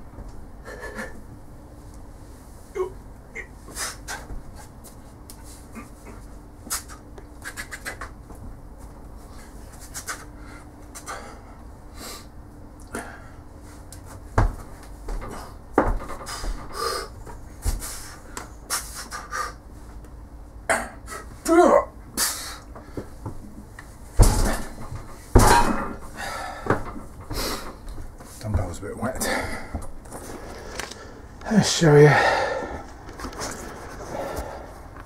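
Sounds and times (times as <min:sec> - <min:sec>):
man breathing hard: 0:09.2 - 0:13.8, 0:15.2 - 0:19.6, 0:22.2 - 0:23.2, 0:25.9 - 0:27.9, 0:29.2 - 0:29.9, 0:32.0 - 0:35.0
thumps: 0:24.1 - 0:27.9.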